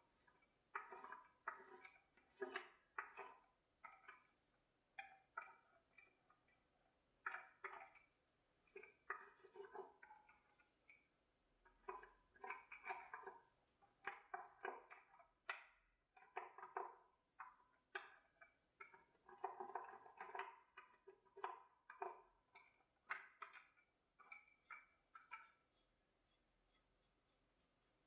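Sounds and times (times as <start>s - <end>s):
paintbrush strokes and dabs: 24.2s - 28.0s.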